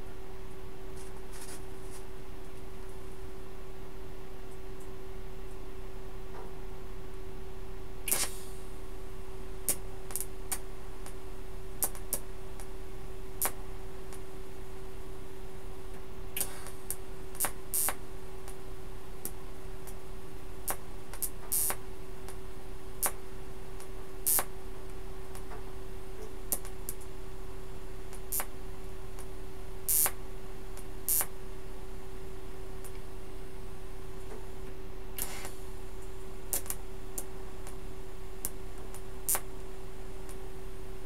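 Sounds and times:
welding crackles: 16.4s - 18.6s, 20.7s - 22.4s, 23.8s - 24.5s, 28.1s - 28.6s, 29.9s - 30.2s, 30.8s - 31.4s, 36.5s - 37.8s.

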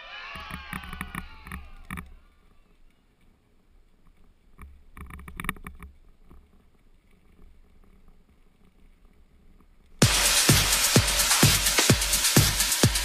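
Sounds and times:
electronic dance music: 10.0s - 13.0s.

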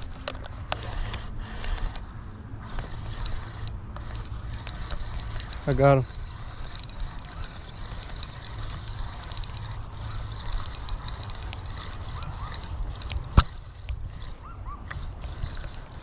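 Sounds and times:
fishing reel clicking: 0.0s - 16.0s
sharp click: 6.6s - 14.0s.

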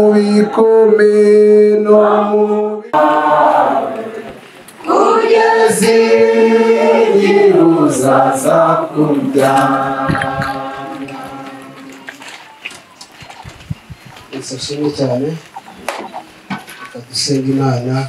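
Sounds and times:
group singing a hymn: 0.0s - 12.6s.

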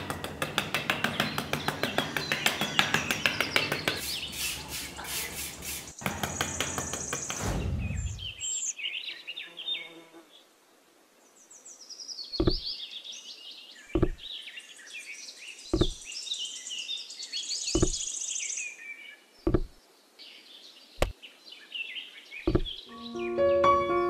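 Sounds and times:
small birds chirping: 0.0s - 23.5s
low knocks of clay pieces: 14.0s - 14.2s, 15.8s - 16.0s, 19.5s - 19.8s.

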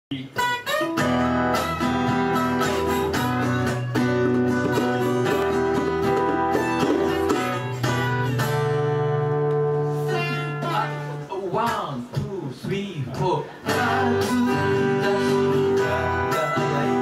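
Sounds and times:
acoustic guitars strummed: 0.1s - 17.0s
held keyboard chords: 0.8s - 10.7s.

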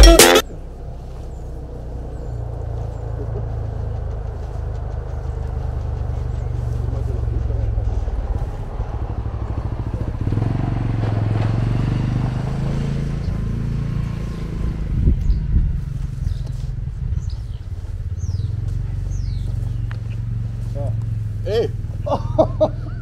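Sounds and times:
motorcycle engine idling: 2.2s - 11.0s, 15.2s - 23.0s
bird chirps: 16.2s - 20.9s.

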